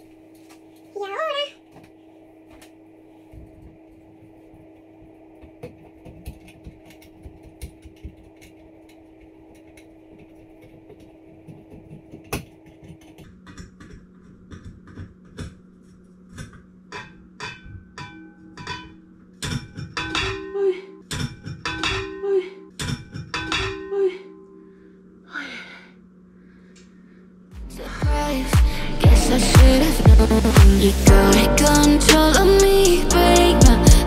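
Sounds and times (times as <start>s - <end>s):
background music with steady beat: 27.6s - 34.0s.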